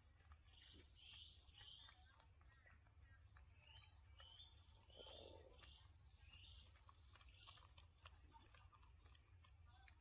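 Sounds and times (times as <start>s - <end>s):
faint high chirps: 0.3s - 7.9s.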